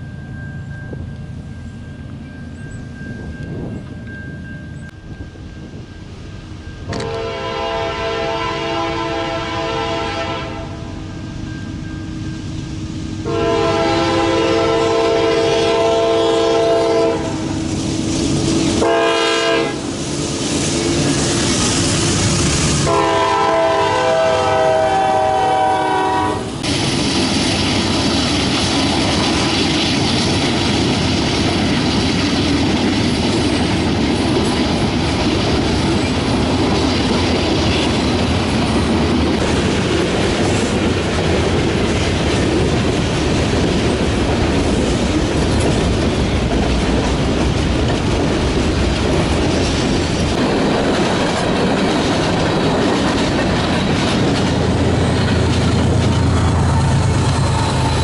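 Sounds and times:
train rumbling past on rails: 0.0 - 58.0
locomotive air horn blasts: 6.9 - 11.0, 13.2 - 17.7, 18.8 - 19.9, 22.7 - 26.6.

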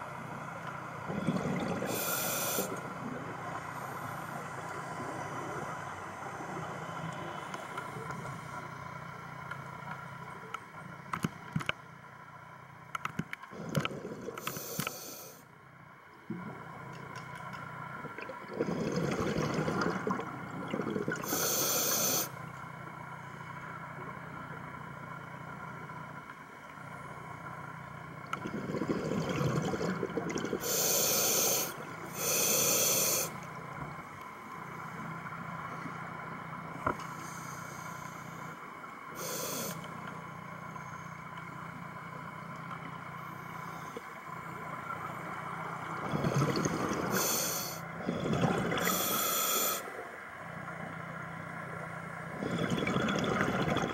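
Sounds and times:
steady low hum: 0.0 - 53.9
gurgling exhaled bubbles: 1.0 - 4.0, 18.0 - 21.4, 28.4 - 31.0, 45.9 - 49.2, 52.3 - 53.9
regulator breathing hiss: 1.9 - 2.8, 14.4 - 15.4, 21.2 - 22.4, 30.6 - 33.4, 37.1 - 39.9, 47.0 - 47.9, 48.8 - 50.0.

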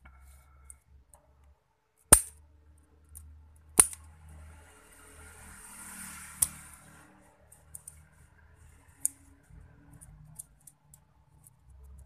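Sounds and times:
small sharp clicks and ticks: 6.2 - 8.2, 8.8 - 12.0.

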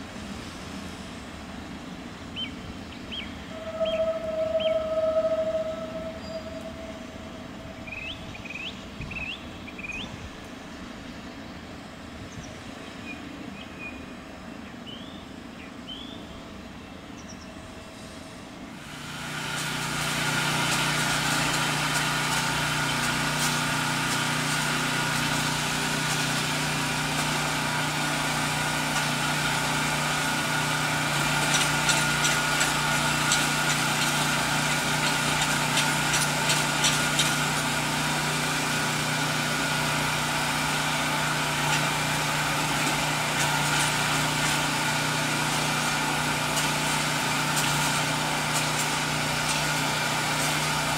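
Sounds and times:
electric locomotive humming and whining: 0.0 - 14.6, 16.2 - 50.9
distant train rolling: 0.0 - 15.1, 16.2 - 50.9
birds chirping: 2.4 - 10.4.

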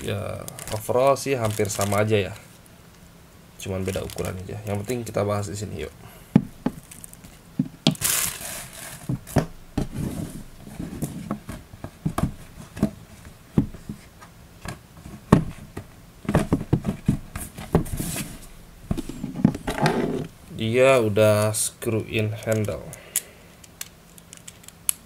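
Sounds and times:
plastic wrapping rustling: 0.0 - 2.6, 3.6 - 5.2, 6.6 - 11.3
box knocks and taps: 14.7 - 17.9.

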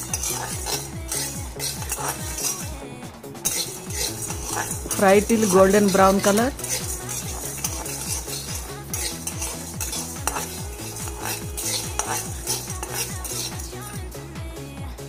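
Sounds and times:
seeds rattling in pan: 0.0 - 2.8, 3.4 - 14.0
spatula scraping metal pan: 0.0 - 2.8, 3.4 - 14.0.

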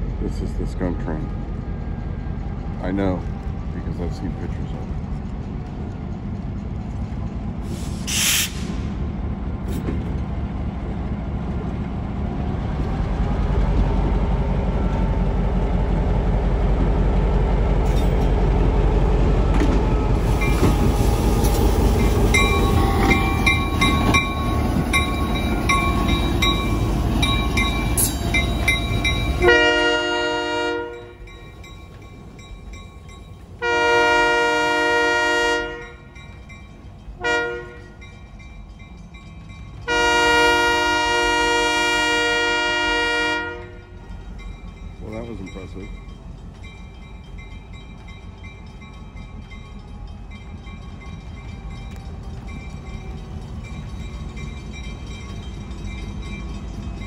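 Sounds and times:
diesel locomotive running: 0.0 - 57.0
train air horn blasts: 29.4 - 31.1, 33.6 - 36.0, 37.2 - 38.0, 39.9 - 44.0.

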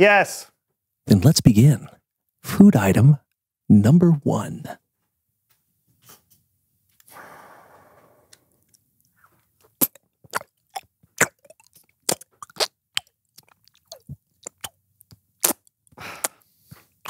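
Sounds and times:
wet mouth smacks and clicks: 9.6 - 16.4.

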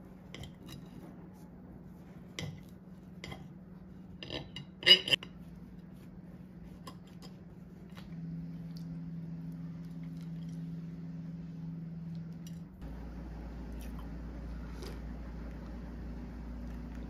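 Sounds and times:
low hum: 0.9 - 17.0
cutlery clinking on plate: 4.2 - 5.4.

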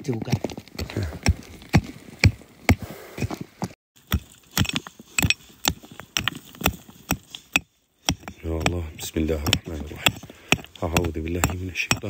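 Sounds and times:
pick striking hard soil: 4.0 - 12.0.

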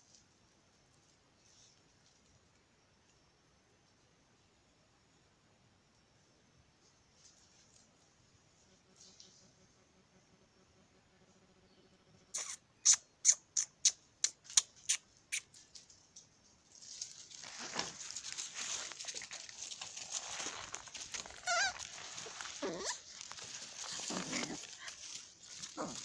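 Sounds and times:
puppies squeaking and yelping: 12.4 - 15.5, 20.6 - 26.0
puppies scampering over dry leaves: 15.5 - 26.0.

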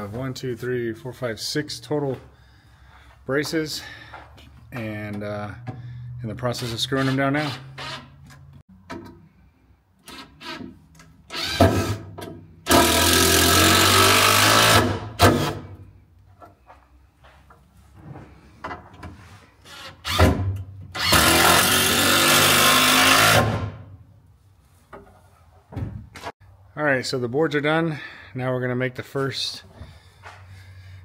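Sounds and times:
cordless drill driving screws: 7.0 - 8.1, 11.3 - 12.0, 12.7 - 15.6, 21.0 - 23.6.

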